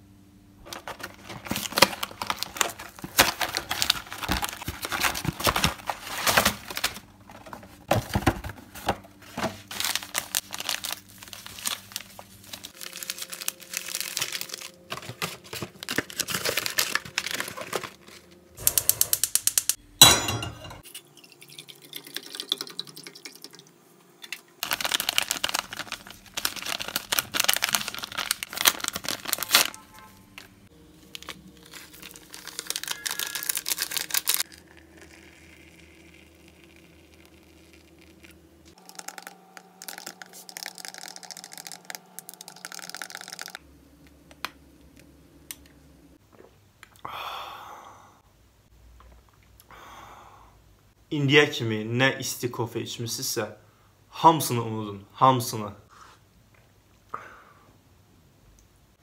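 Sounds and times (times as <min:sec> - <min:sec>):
foil sachets crinkling: 0:00.6 - 0:19.0, 0:24.6 - 0:43.6.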